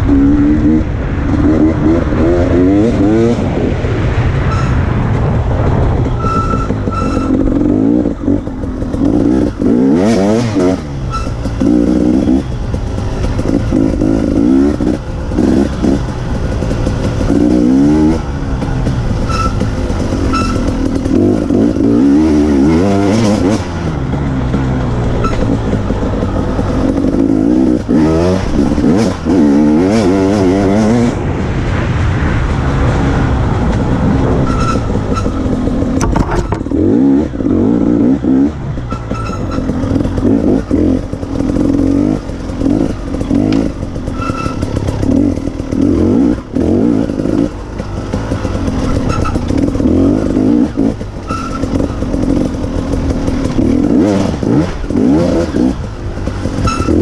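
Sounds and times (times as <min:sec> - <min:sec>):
motorcycle engine revving: 0:00.0 - 0:57.0
motorcycle knocking over bumps: 0:34.8 - 0:57.0.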